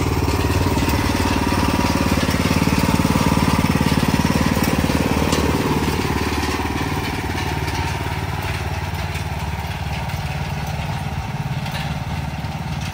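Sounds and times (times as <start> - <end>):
small engine running: 0.0 - 12.9.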